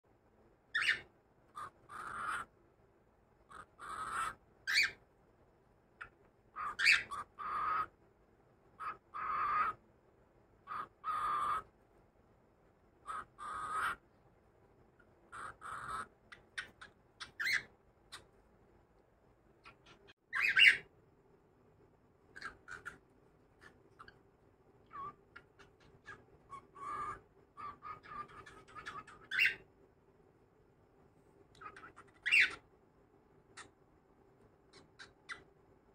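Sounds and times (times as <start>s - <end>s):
cockatiel chirping: 0.7s - 2.5s, 3.4s - 5.0s, 6.0s - 7.9s, 8.8s - 9.8s, 10.6s - 11.7s, 13.0s - 14.0s, 15.0s - 18.4s, 19.6s - 20.9s, 22.3s - 29.7s, 31.5s - 32.7s, 33.5s - 33.8s, 34.7s - 35.6s.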